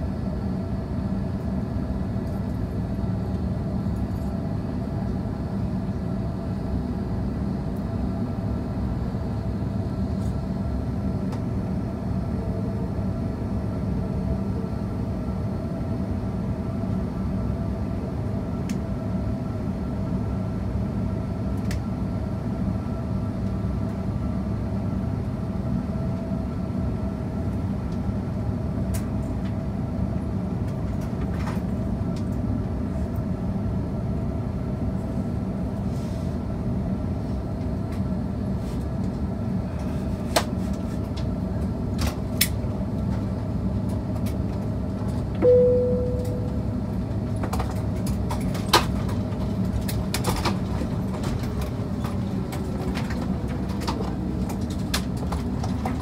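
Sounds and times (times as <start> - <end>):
jet engines droning at idle: 0.0 - 56.0
cabin chime: 45.4 - 46.7.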